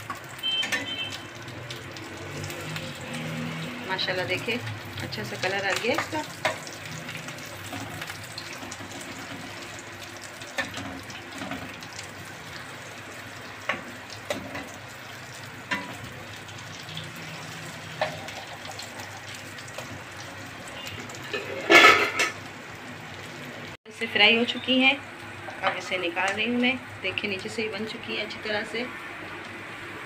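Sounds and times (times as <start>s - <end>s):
cutlets sizzling in a pan: 0.0s - 30.0s
spatula and fork tapping pan: 15.7s - 16.0s.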